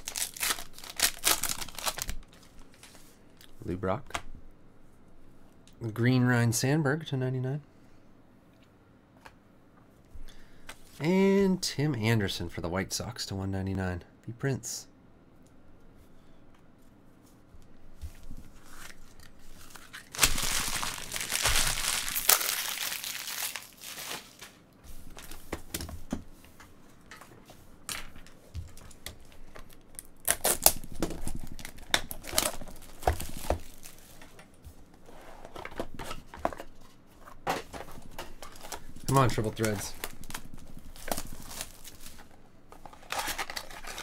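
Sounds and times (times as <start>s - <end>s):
plastic wrap tearing: 0.0s - 2.9s, 18.8s - 24.6s, 29.5s - 34.1s, 38.1s - 42.3s, 42.9s - 44.0s.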